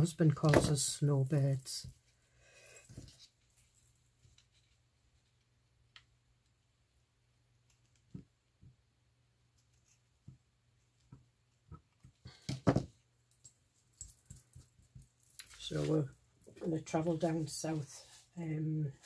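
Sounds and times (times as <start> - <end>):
rustling: 0.4 - 5.5.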